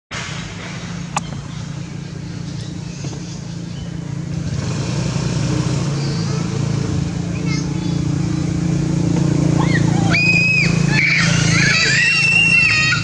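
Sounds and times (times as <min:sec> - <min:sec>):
motor vehicle rumble: 0:00.1 - 0:13.0
sharp click: 0:01.1 - 0:01.5.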